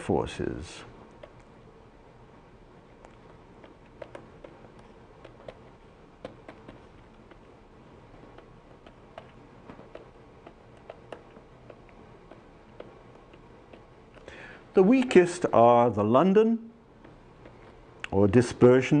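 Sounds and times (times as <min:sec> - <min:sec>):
faint steady hum: 0:00.0 - 0:19.0
stylus clicking on tablet: 0:03.0 - 0:07.4, 0:08.3 - 0:13.9.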